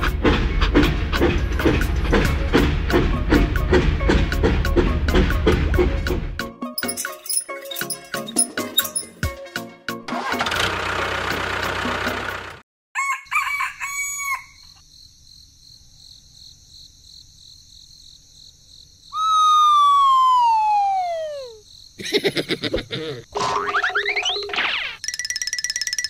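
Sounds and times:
engine noise: 10.1 - 12.6
rooster crowing: 13.0 - 14.8.

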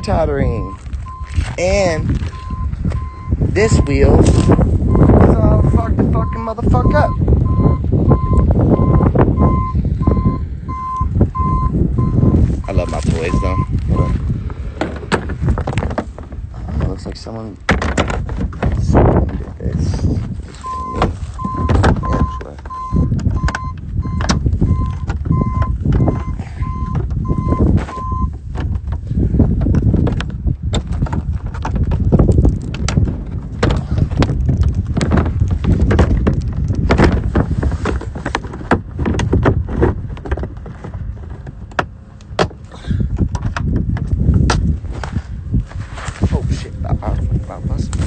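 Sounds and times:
wind rumble on microphone: 0.0 - 48.0
vehicle warning chime beeping: 0.6 - 1.4, 2.3 - 14.2, 20.6 - 28.3
handling knocks: 14.8 - 19.6
plastic panels clicking and knocking: 14.8 - 19.6, 20.9 - 44.7.

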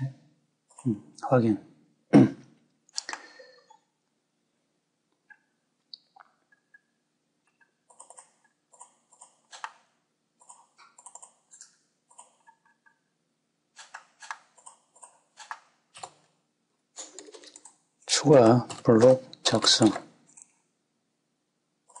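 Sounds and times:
keyboard typing: 7.6 - 13.0, 13.8 - 16.2, 17.0 - 20.6.

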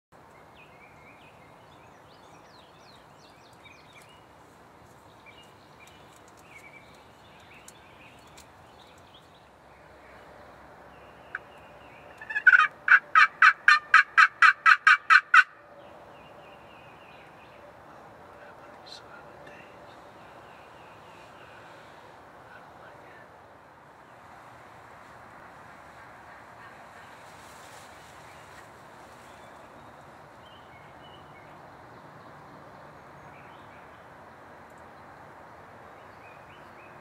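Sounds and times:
faint songbird chirps: 0.2 - 12.5
turkey yelping: 12.2 - 15.5.

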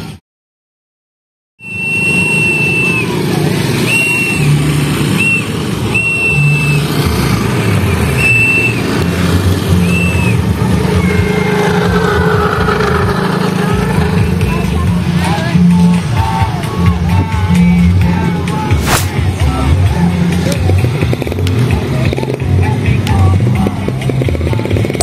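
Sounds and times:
high whistle blasts: 1.6 - 3.2, 3.8 - 4.6, 5.2 - 6.9, 8.2 - 8.9.

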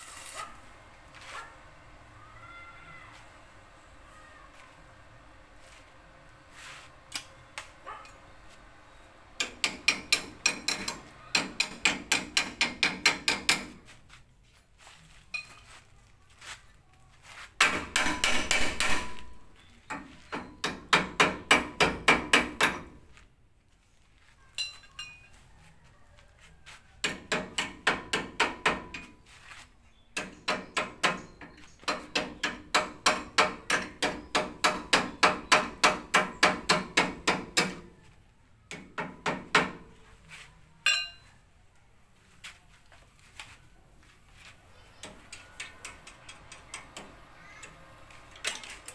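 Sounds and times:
hammer striking steel frame: 9.4 - 13.9, 17.6 - 23.1, 27.0 - 29.2, 30.2 - 38.0, 38.7 - 40.0, 45.0 - 48.9.

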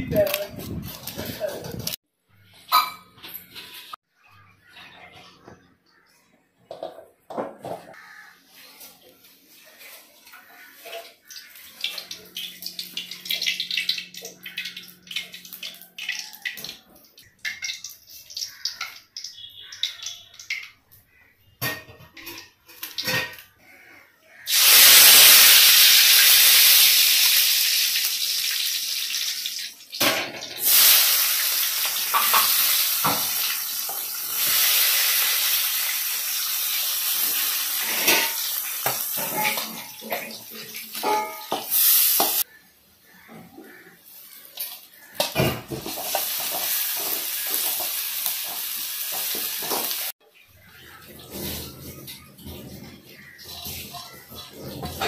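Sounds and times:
hot oil sizzling: 9.5 - 16.8, 17.4 - 20.7, 24.3 - 42.6, 44.1 - 50.8
steel spoon scraping pan: 37.2 - 40.2, 41.0 - 42.4
metal clinks against pan: 41.0 - 41.8.

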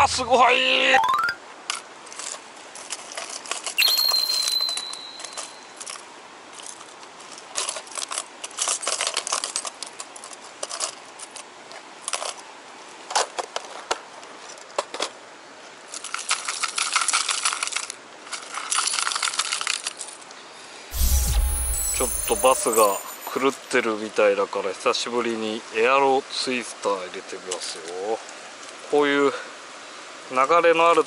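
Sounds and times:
high steady tone: 3.8 - 5.7, 20.9 - 23.4.

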